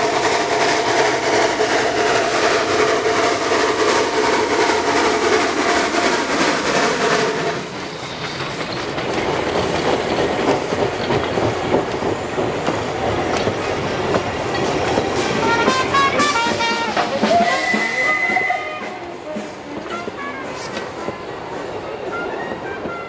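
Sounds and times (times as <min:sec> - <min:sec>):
steam train passing: 0:00.0 - 0:23.0
wheels clattering over rail joints: 0:07.9 - 0:16.2.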